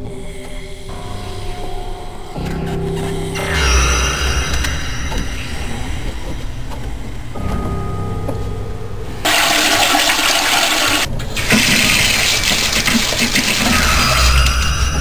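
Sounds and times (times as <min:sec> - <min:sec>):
water running from faucet: 0:09.3 - 0:14.7.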